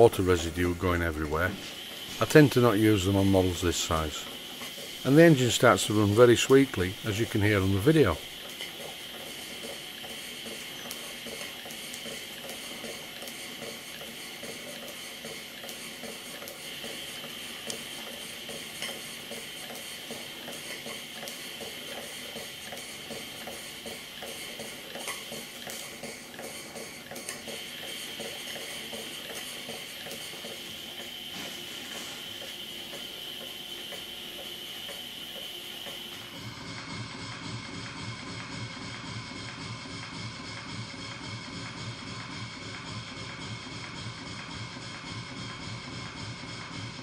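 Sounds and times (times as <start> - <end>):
steam hissing: 0.0 - 36.6.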